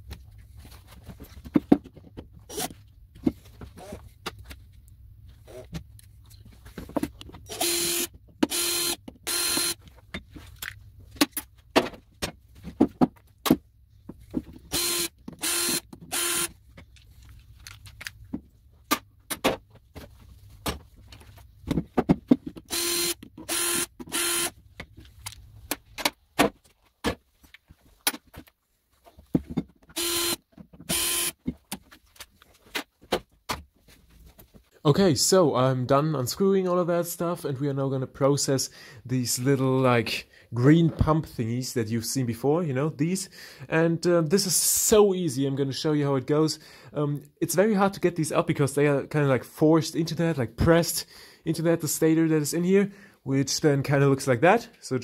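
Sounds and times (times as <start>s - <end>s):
cordless drill whirring: 2.5s - 2.7s, 7.5s - 9.8s, 14.7s - 16.5s, 22.7s - 24.6s, 30.0s - 31.4s.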